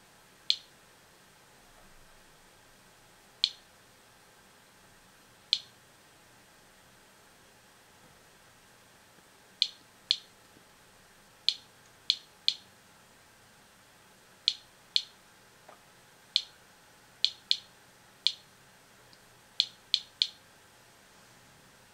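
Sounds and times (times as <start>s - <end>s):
geiger counter clicking: 0.5s - 0.7s, 3.4s - 3.7s, 5.5s - 5.8s, 9.6s - 10.3s, 11.4s - 12.7s, 14.4s - 15.2s, 16.3s - 16.6s, 17.2s - 18.5s, 19.6s - 20.4s.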